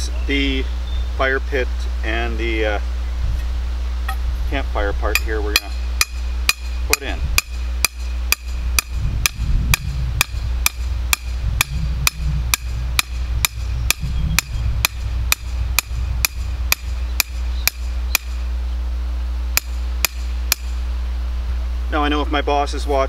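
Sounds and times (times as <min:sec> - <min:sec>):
hammer pounding metal post: 0:05.2 - 0:18.4, 0:19.6 - 0:20.8.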